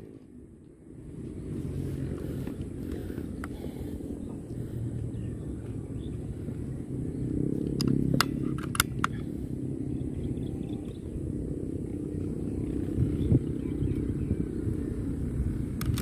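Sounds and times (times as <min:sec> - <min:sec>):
wind rumble on microphone: 0:00.0 - 0:16.0
air rifle bolt clicks: 0:07.6 - 0:09.2, 0:15.8 - 0:16.0.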